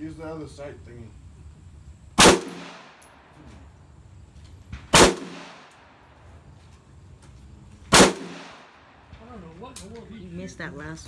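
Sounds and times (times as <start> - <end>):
rifle shot with echo: 2.2 - 3.3, 4.8 - 6.0, 7.9 - 8.9.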